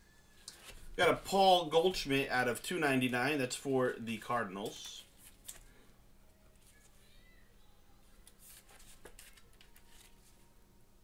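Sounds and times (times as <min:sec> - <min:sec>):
hands handling plastic card sleeve: 0:04.6 - 0:05.8, 0:08.1 - 0:10.4.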